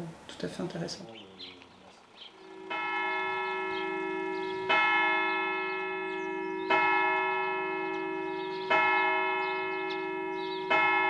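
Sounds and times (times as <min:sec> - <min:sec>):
church bell tolling: 0:02.3 - 0:11.0.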